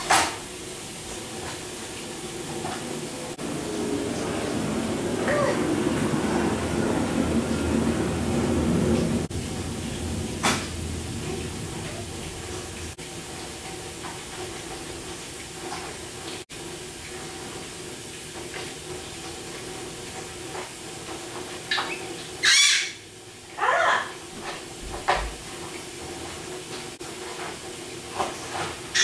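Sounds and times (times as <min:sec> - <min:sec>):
room hum: 0:00.0 - 0:29.0
baby squealing: 0:05.2 - 0:05.6.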